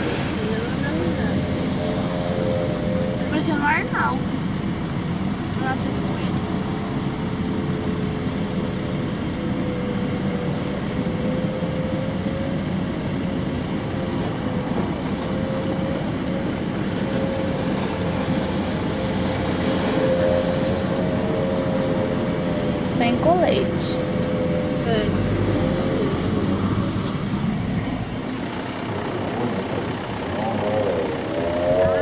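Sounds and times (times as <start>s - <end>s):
rush of spray: 0.0s - 2.1s
speedboat engine droning: 0.0s - 32.0s.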